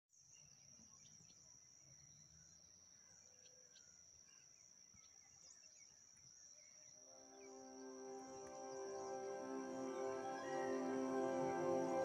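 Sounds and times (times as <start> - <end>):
high-pitched insect drone: 7.0 - 12.0.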